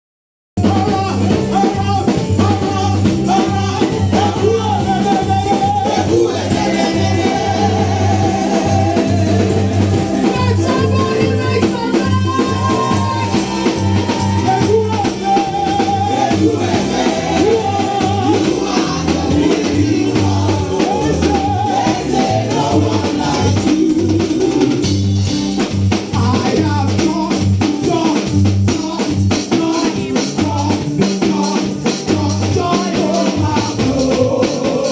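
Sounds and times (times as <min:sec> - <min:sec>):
drum beat: 0:00.6 - 0:34.9
keyboard: 0:00.6 - 0:34.9
woman singing gospel: 0:02.8 - 0:24.8, 0:31.2 - 0:34.9.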